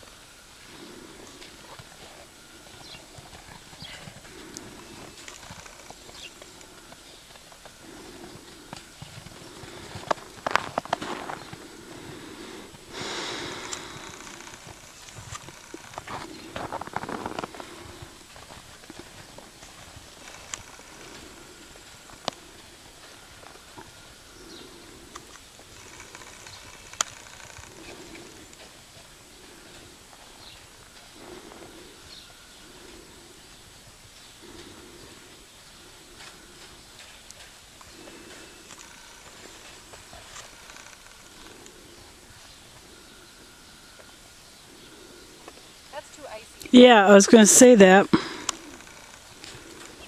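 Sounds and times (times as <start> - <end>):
hoofbeats on snow: 0.0 - 43.4
faint bird chirps: 23.2 - 25.5.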